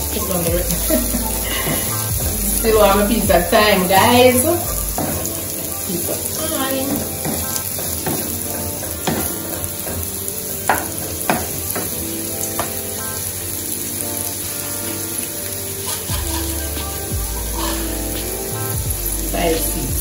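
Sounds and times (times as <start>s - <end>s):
onions sizzling in oil: 0.0s - 20.0s
wooden spoon knocking on pan: 4.9s - 5.4s, 6.0s - 12.0s, 12.6s - 12.8s.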